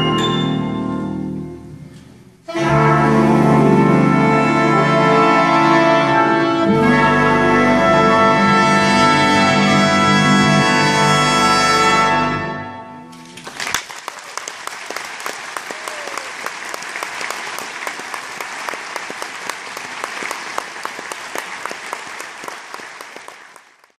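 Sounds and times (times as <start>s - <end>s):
audience applauding: 13.3s - 24.0s.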